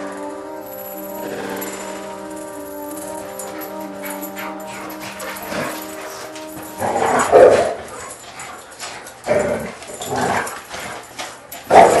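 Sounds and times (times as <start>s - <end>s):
dogs barking: 3.3s - 12.0s.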